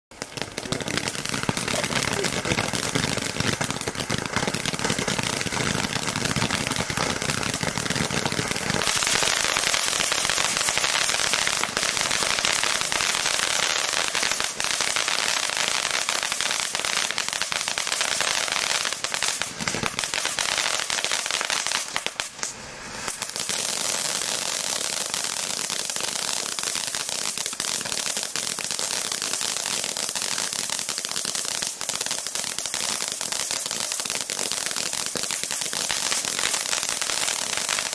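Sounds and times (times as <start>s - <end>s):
crackling pops: 0.1s - 13.3s, 18.9s - 20.8s, 21.8s - 23.4s
ground fountain firework hissing: 0.2s - 37.9s.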